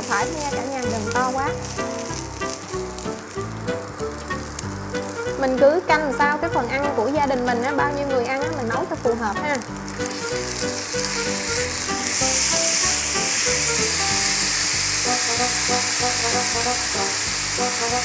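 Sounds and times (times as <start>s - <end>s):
rice being poured: 0.0s - 5.3s, 9.7s - 18.0s
spatula stirring in pan: 0.0s - 6.4s
background music: 0.0s - 18.0s
rice sizzling in hot oil: 0.0s - 18.0s.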